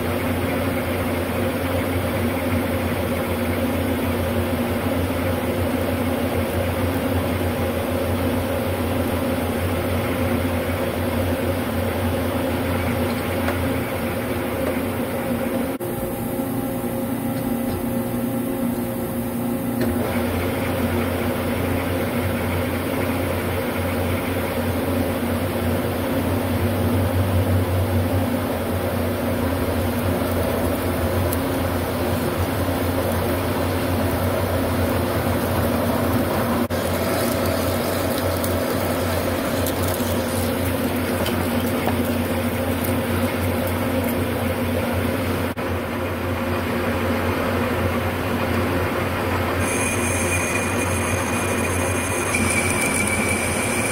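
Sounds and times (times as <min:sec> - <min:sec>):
metal lathe humming: 0:00.0 - 0:53.9
boring bar cutting metal: 0:49.5 - 0:53.9
drill cutting metal: 0:49.5 - 0:53.9.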